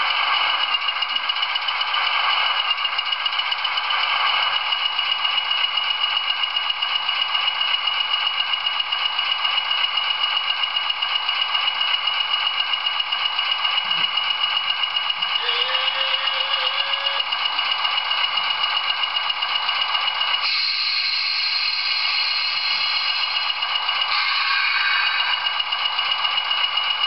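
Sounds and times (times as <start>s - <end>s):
model diesel engine idling: 0.0s - 27.0s.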